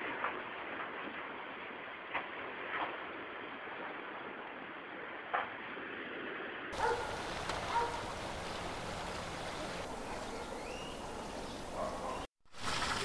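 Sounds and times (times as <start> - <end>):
outdoor background noise: 0.0 - 13.0
faint calls: 6.8 - 12.3.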